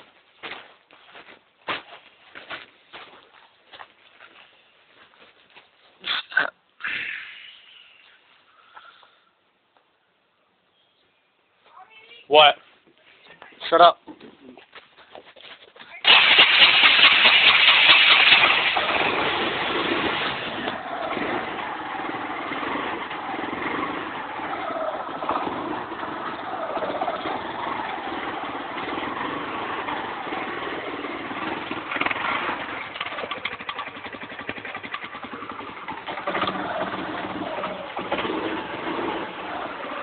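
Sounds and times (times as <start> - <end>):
atv engine starting and idling: 16.0 - 40.0.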